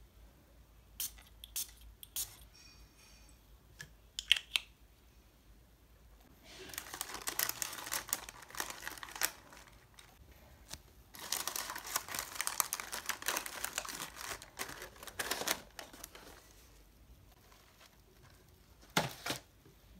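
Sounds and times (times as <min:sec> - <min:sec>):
paper and cardboard rustling: 0:06.6 - 0:19.5.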